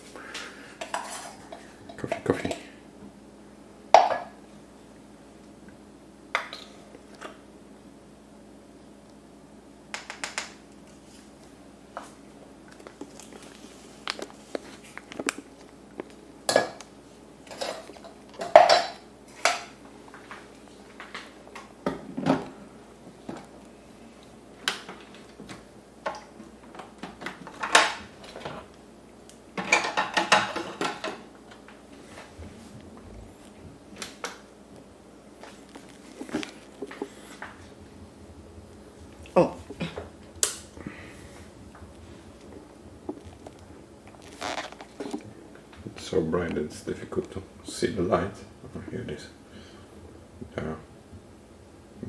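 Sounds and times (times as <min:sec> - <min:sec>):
portafilter and cups clinking: 0:17.5 - 0:19.7.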